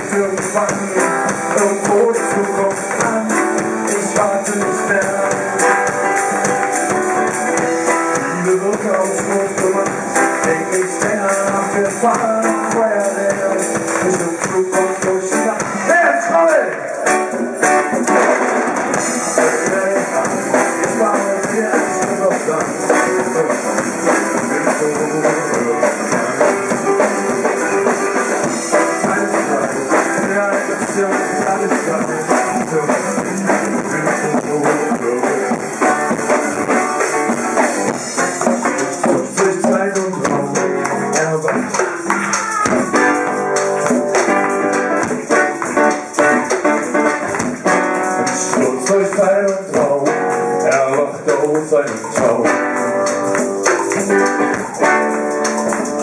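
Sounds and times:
congas: 0.0s - 56.0s
drum kit: 0.0s - 56.0s
strummed acoustic guitar: 0.0s - 56.0s
shakers: 19.1s - 56.0s.

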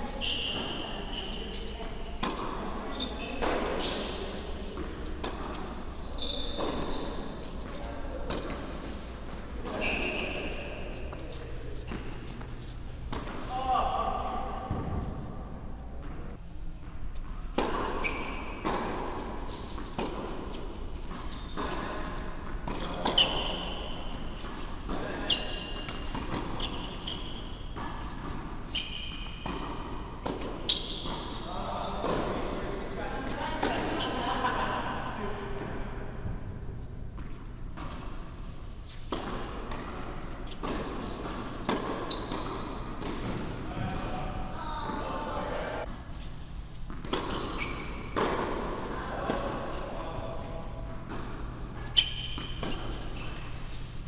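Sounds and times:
tennis ball bouncing: 1.6s - 2.6s, 24.3s - 27.1s, 29.2s - 31.4s, 39.1s - 43.5s, 46.9s - 49.4s
short high squeaks: 6.1s - 7.4s, 9.7s - 10.8s, 18.0s - 18.6s, 47.4s - 48.2s, 51.8s - 53.6s
rackets striking tennis ball: 17.5s - 32.6s, 38.9s - 44.0s, 46.9s - 49.6s, 51.0s - 53.9s.

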